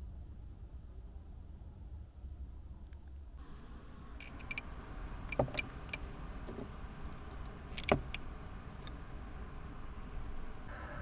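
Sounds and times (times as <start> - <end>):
faint high-pitched whine: 0.0 - 11.0.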